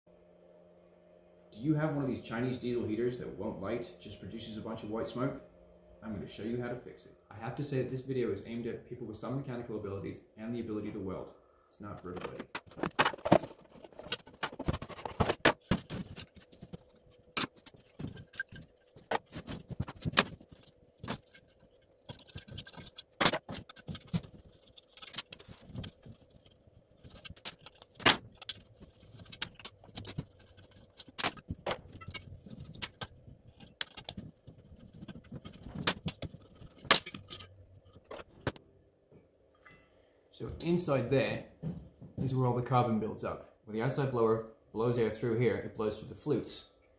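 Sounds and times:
faint steady hum: 0:00.1 - 0:46.9
tools and parts clinking: 0:12.1 - 0:38.6.

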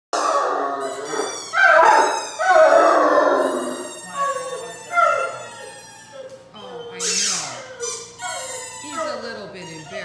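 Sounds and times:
puppy howling: 0:00.2 - 0:10.0.

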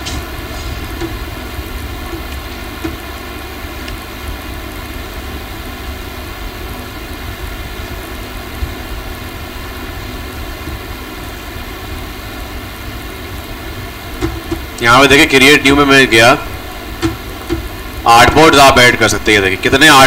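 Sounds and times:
faint electrical hum: 0:00.0 - 0:20.0
background hiss: 0:11.2 - 0:20.0.

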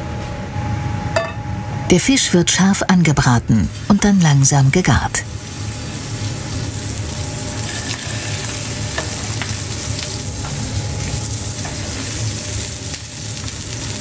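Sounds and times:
low steady hum: 0:00.0 - 0:14.0
fish sizzling in a frying pan: 0:05.2 - 0:14.0.

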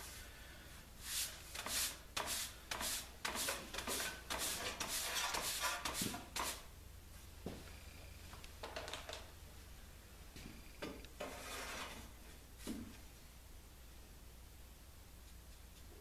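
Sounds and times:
faint low hum: 0:06.7 - 0:16.0
scuffing and rustling of handling: 0:12.6 - 0:13.1.

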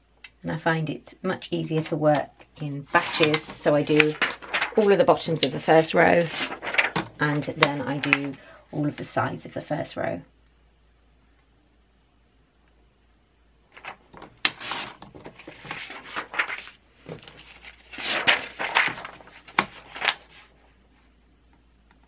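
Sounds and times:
paper rustling: 0:02.8 - 0:09.1, 0:13.7 - 0:20.5.

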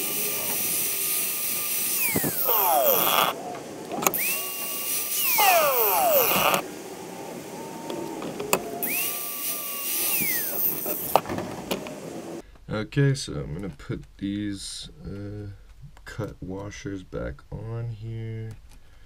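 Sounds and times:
angle grinder grinding metal: 0:00.0 - 0:03.4, 0:04.1 - 0:06.6, 0:08.8 - 0:11.2.

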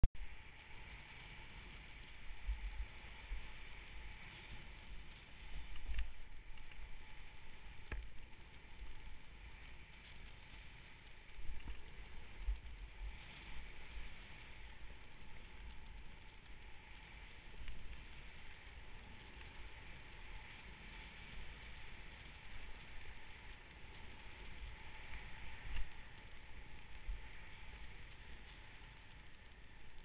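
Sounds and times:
snowboard hissing through snow: 0:00.5 - 0:11.0.

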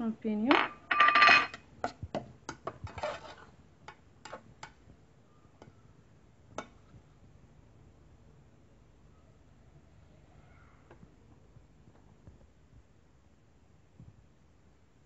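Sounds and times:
metal spoon scraping metal pot: 0:02.9 - 0:03.5.

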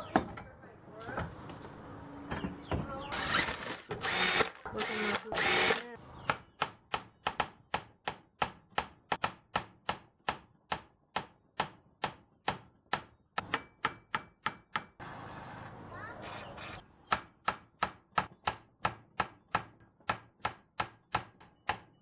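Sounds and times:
cordless drill running: 0:03.1 - 0:06.0.

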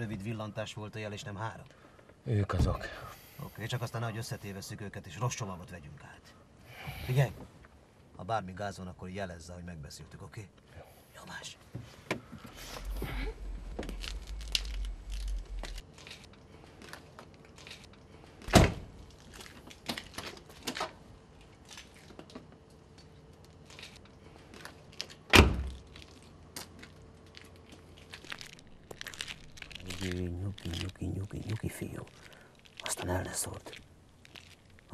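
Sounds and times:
rustling: 0:11.8 - 0:18.4, 0:25.8 - 0:34.9.

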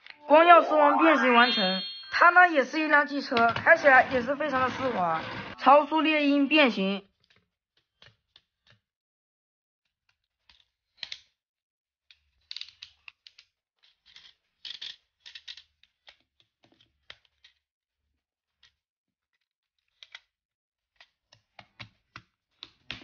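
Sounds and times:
plastic toy parts clicking: 0:10.4 - 0:11.4, 0:12.1 - 0:17.6, 0:19.9 - 0:20.3.

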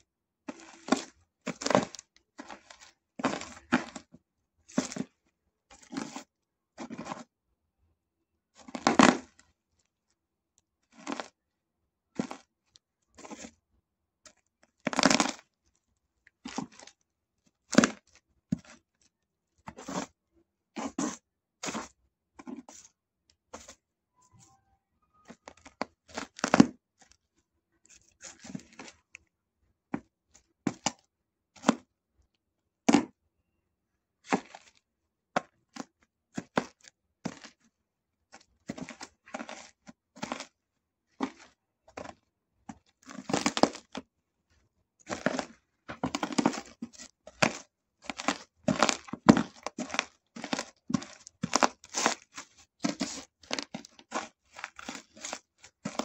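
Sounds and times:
shoes crunching fried snacks: 0:45.1 - 0:56.0.

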